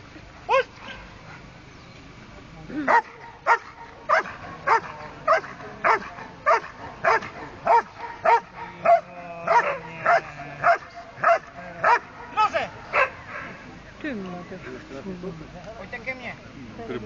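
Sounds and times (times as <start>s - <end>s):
dog barking: 0.5s - 1.0s, 2.9s - 13.6s.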